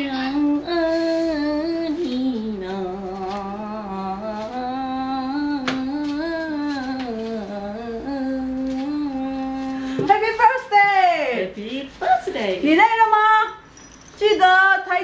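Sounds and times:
person humming a slow tune: 0.2s - 10.0s.

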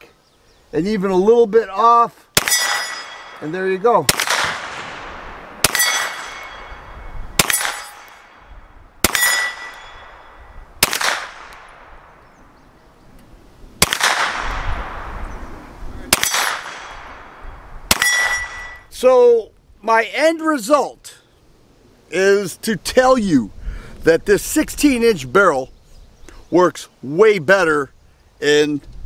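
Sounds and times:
pistol shots with echo: 2.4s - 12.4s, 13.8s - 18.8s.

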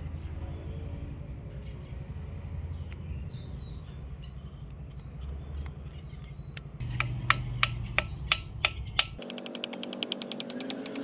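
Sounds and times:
sharp clicks: 4.9s - 11.0s.

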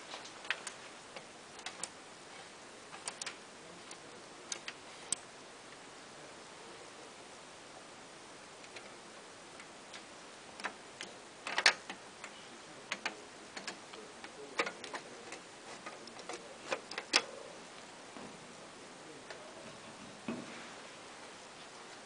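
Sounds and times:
switches and buttons clicking: 3.0s - 5.2s
lever being worked: 9.6s - 17.3s.

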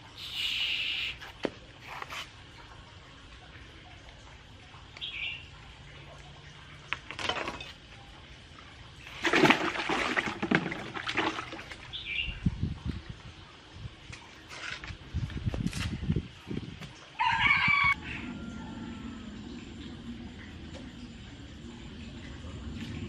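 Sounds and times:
water splashing and sloshing: 1.1s - 23.0s
bird chirp: 11.9s - 12.4s.

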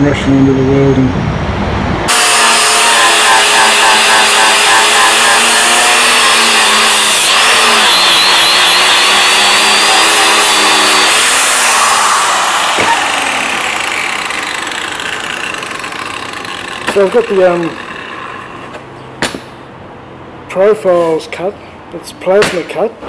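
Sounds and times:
angle grinder on steel: 2.1s - 19.0s.

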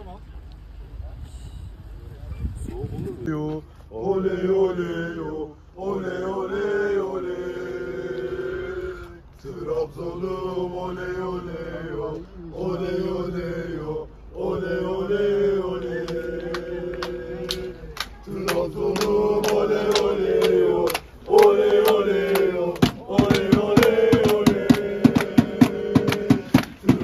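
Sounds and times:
men chanting together: 3.9s - 27.0s
hand clapping: 16.0s - 27.0s.

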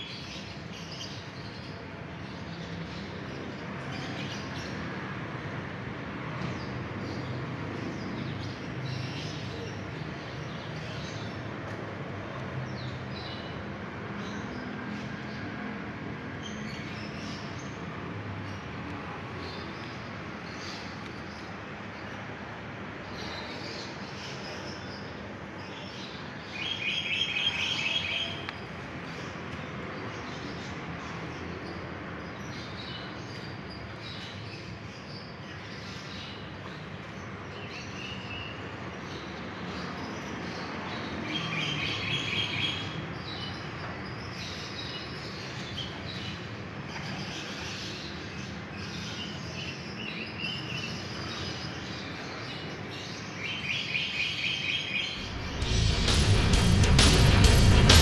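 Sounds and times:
outdoor background noise: 0.0s - 58.0s
steady low rumble: 55.2s - 58.0s.

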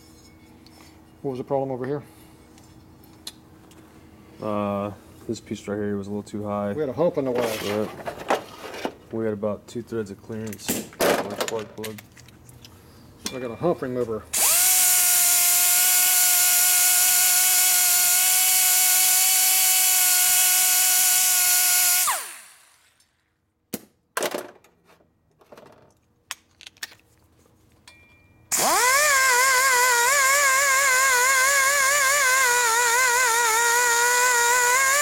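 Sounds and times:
die grinder whining: 14.4s - 22.9s, 28.5s - 35.0s.

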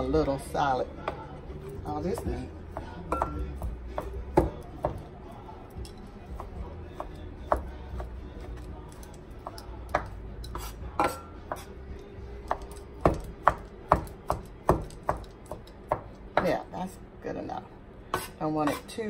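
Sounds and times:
knife chopping on wooden board: 2.1s - 5.0s, 6.3s - 11.7s, 12.5s - 16.6s.

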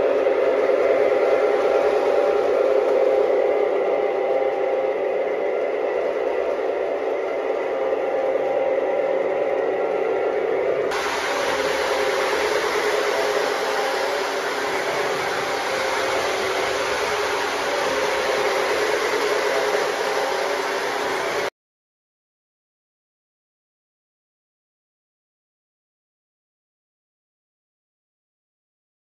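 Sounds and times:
model train whirring hum: 0.0s - 21.5s.

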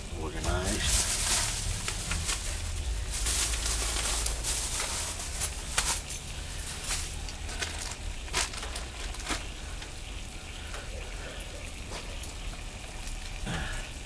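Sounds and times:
steady low hum: 0.0s - 14.0s
supplies handled in a bag: 0.4s - 9.6s.

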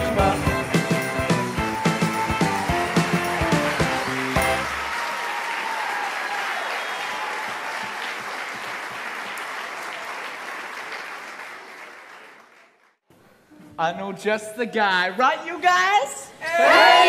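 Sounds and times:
audience applauding: 0.0s - 13.0s
people shouting: 16.4s - 17.0s.

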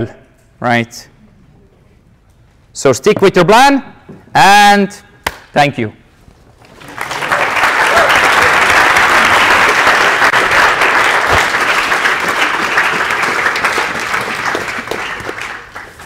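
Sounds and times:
audience applauding: 6.6s - 16.0s.

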